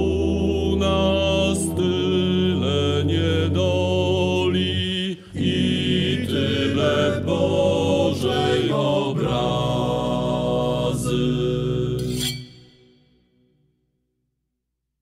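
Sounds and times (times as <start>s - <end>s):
male vocal group singing: 0.0s - 12.2s.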